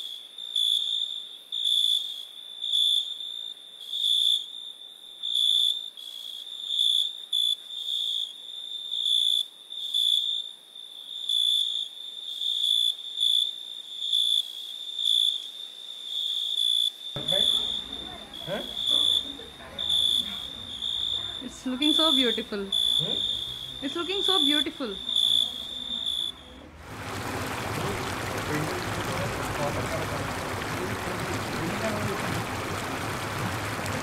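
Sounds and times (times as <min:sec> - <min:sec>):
high-pitched insect trill: 0:00.0 - 0:26.5.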